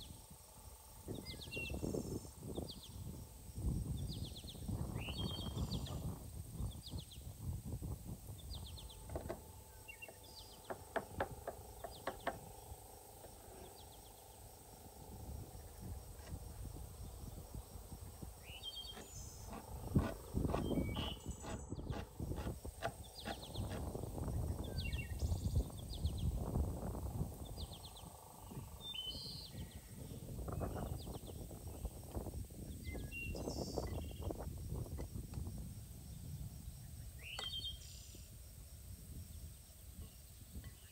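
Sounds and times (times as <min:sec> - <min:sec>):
small birds chirping: 0:08.3 - 0:26.6, 0:36.8 - 0:38.2.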